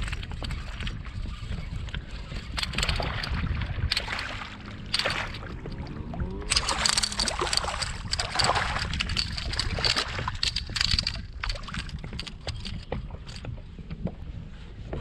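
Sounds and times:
fish splashing in water: 0:02.8 - 0:10.4.

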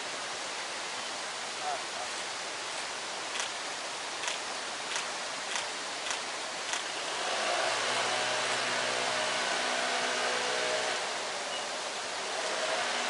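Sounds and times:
light ticks: 0:04.2 - 0:06.9
outdoor rushing noise: 0:04.3 - 0:11.4.

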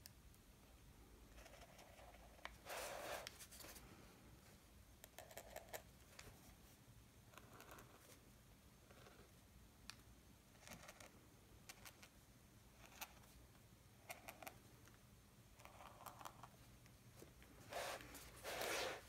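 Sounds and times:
brushing sound: 0:17.6 - 0:19.0.

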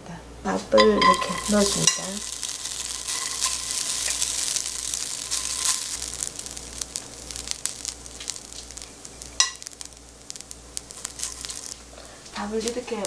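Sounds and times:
rice sizzling in a frying pan: 0:00.5 - 0:13.0
metal spoon scraping and tapping: 0:00.8 - 0:02.1.

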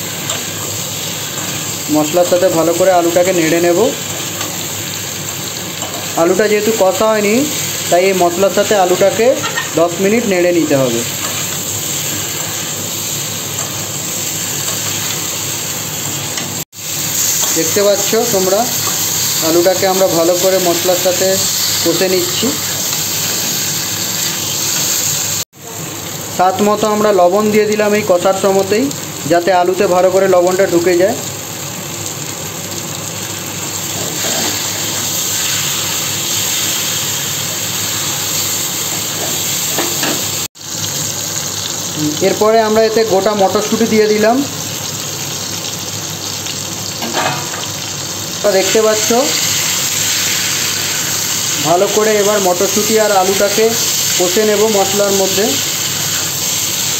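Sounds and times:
spatula turning food: 0:00.0 - 0:25.2
potatoes sizzling in a pan: 0:00.0 - 0:56.9.

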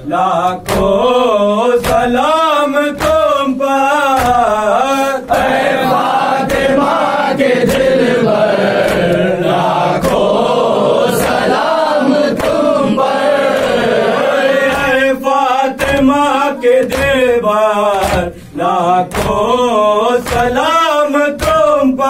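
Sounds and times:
crowd of men chanting: 0:00.0 - 0:22.0.

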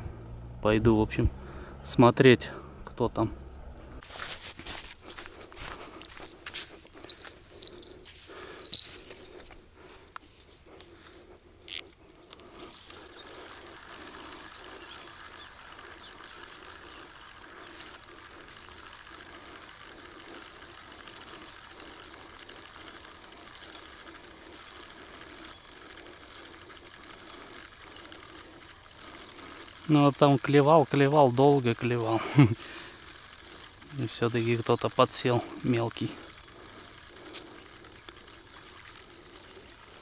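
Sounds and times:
fishing reel cranking whirr: 0:06.9 - 0:09.5, 0:11.6 - 0:40.0.

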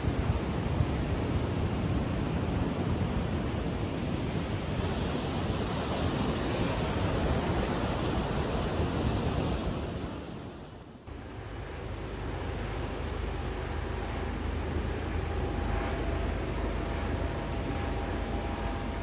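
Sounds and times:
ocean surf breaking on beach: 0:00.0 - 0:11.0.

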